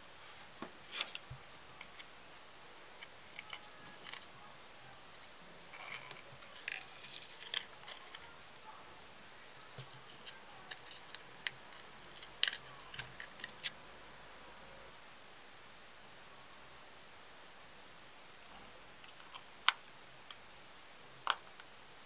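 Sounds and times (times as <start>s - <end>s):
plastic and paper crinkling: 3.3s - 4.3s, 5.2s - 8.4s, 9.5s - 13.7s.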